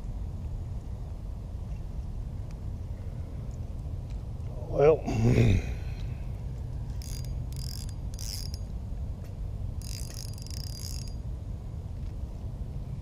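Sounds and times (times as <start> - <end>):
steady low rumble: 0.0 - 13.0
fishing reel whirring: 6.9 - 8.7, 9.8 - 11.2.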